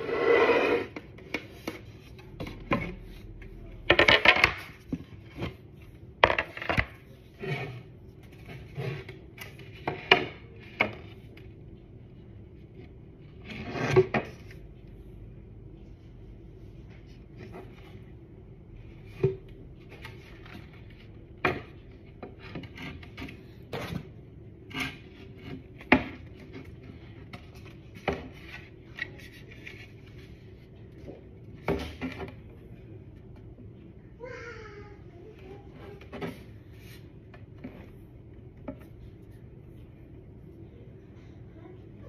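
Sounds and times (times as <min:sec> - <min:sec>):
wood rubbing and scraping: 0:00.0 - 0:11.3, 0:18.9 - 0:32.2.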